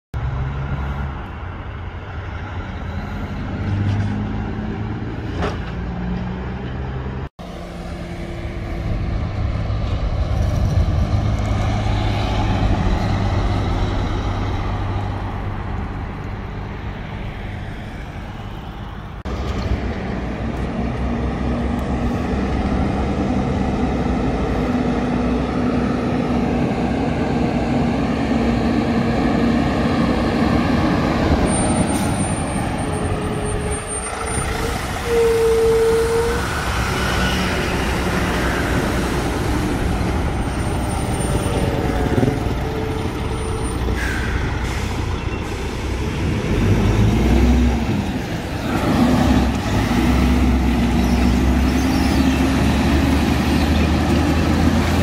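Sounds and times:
heavy diesel trucks passing: 0.2s - 55.0s
truck engine accelerating: 0.2s - 55.0s.

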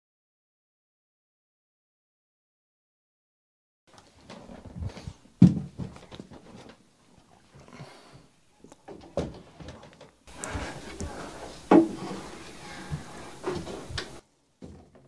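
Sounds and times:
furniture knocks and thumps: 4.7s - 6.4s, 10.5s - 15.0s.

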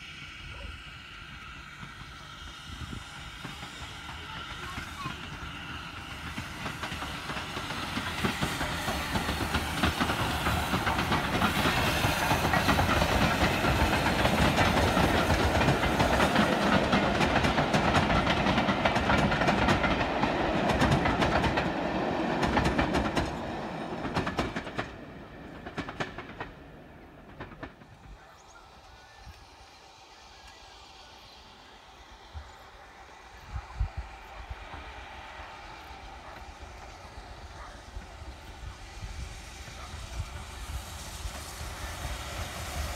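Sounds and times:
train wheels clattering over rail joints: 1.7s - 28.5s.

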